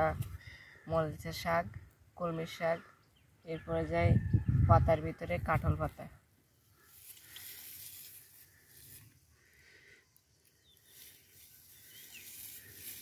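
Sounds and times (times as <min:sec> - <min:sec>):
dry grass rustling: 0:05.6 - 0:13.0.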